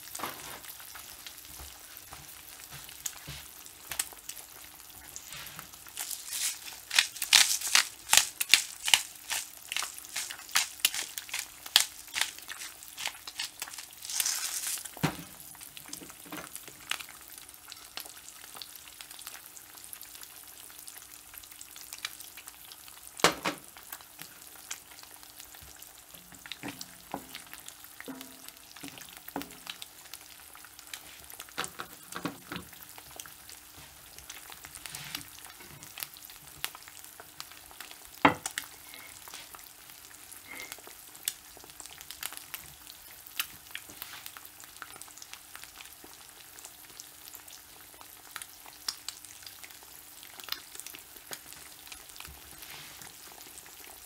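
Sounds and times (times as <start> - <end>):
eggs sizzling in a skillet: 0.0 - 54.0
crackling pops: 6.0 - 15.1.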